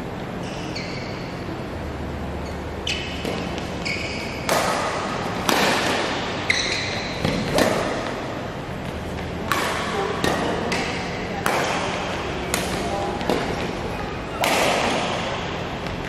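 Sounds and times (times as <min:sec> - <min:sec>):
shoes squeaking on court floor: 0:00.3 - 0:01.5, 0:02.4 - 0:09.4
rackets hitting shuttlecock: 0:02.5 - 0:16.0.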